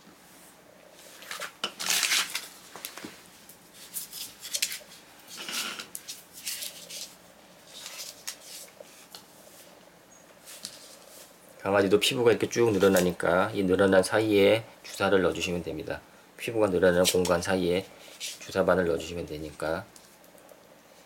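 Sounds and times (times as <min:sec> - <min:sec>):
rustling and handling noises: 0:00.0 - 0:13.3, 0:16.8 - 0:18.7, 0:19.4 - 0:21.0.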